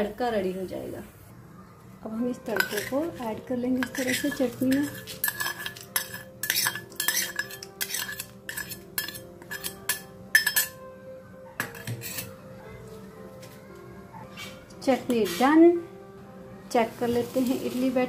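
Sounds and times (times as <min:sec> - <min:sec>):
spoon scraping metal bowl: 0:02.4 - 0:10.8, 0:11.6 - 0:12.4.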